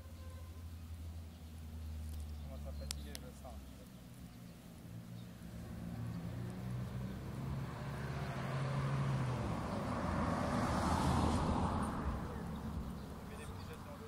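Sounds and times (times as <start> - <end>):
vehicle passing by: 0.5 - 14.0.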